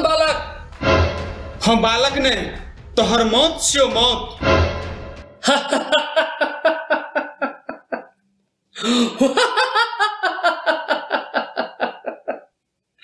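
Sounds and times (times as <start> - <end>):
man's mocking laugh: 5.4 - 8.1.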